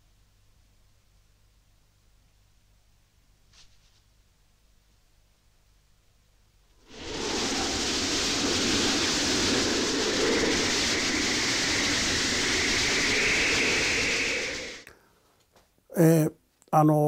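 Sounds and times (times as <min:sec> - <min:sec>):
strong wind rushing: 0:06.8 - 0:14.9.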